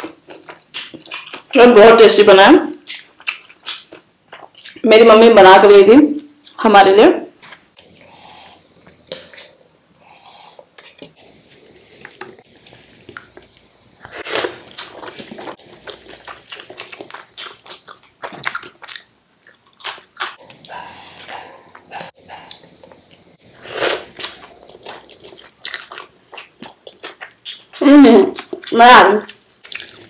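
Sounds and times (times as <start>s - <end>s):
person chewing food: 0.0s - 1.5s, 2.8s - 4.8s, 10.6s - 27.8s, 28.4s - 30.0s.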